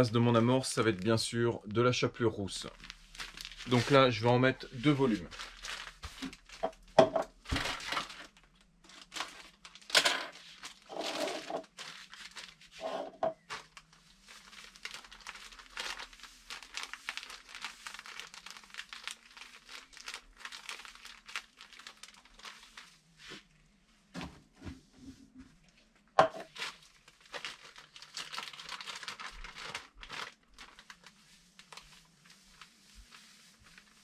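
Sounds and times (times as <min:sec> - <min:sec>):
plastic bag crinkling: 0:02.5 - 0:23.0, 0:26.4 - 0:34.0.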